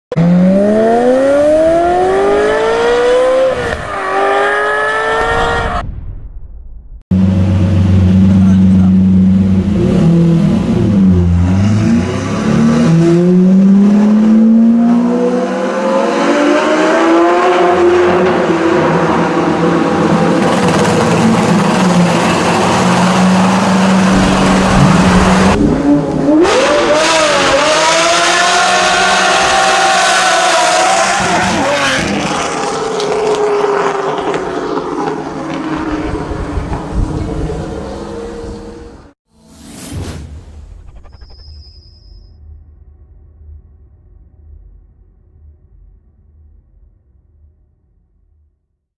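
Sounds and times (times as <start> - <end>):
car engine accelerating hard: 0.1 - 5.8, 7.1 - 39.2.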